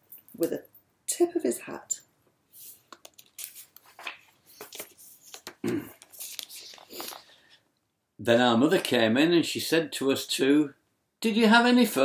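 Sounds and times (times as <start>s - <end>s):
book pages rustling and turning: 2.6s - 7.6s.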